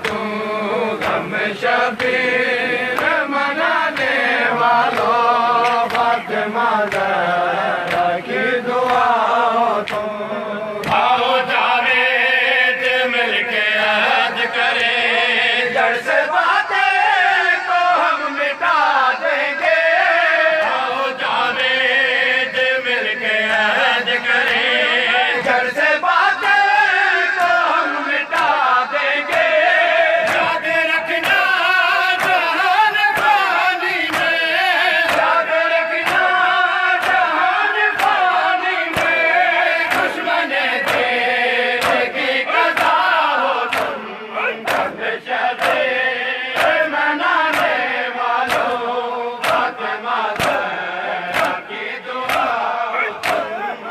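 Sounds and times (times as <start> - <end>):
hand slaps on chests: 0.0 - 2.3, 2.9 - 10.2, 10.8 - 12.2, 22.6 - 24.8, 27.3 - 53.8
men chanting in unison: 0.0 - 53.9.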